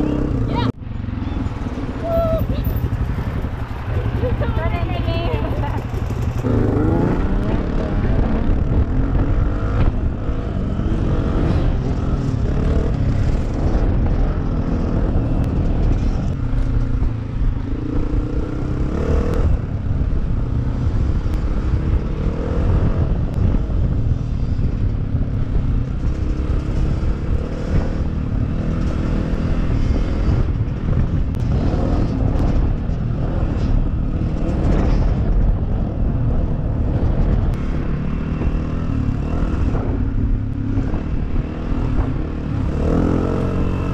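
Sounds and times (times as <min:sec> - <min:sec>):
dirt bike engine revving: 0:05.0 - 0:15.2, 0:37.6 - 0:43.9.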